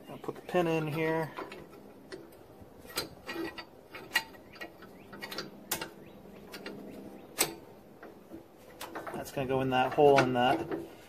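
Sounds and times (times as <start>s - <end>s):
metal pin clicking in bracket: 7.4s - 8.1s.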